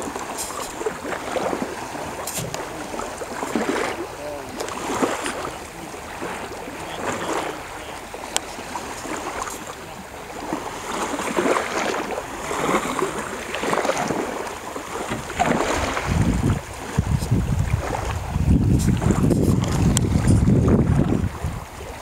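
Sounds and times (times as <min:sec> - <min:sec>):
water sloshing and splashing: 0:00.0 - 0:22.0
wind rumbling on microphone: 0:00.0 - 0:22.0
knocks on boat hull: 0:15.0 - 0:15.6.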